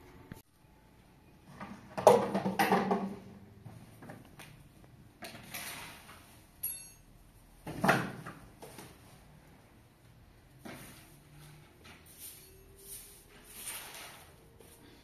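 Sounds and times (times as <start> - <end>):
plastic bin and dustpan clattering: 1.6 - 3.2
broom swishing: 10.8 - 14.9.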